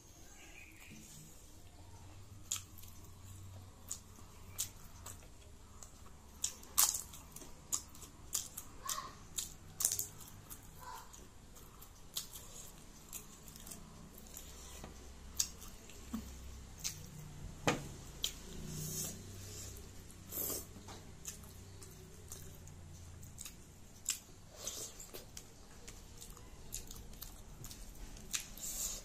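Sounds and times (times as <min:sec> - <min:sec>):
faint low hum: 0:00.0 - 0:29.0
chewing crunches: 0:02.4 - 0:16.0.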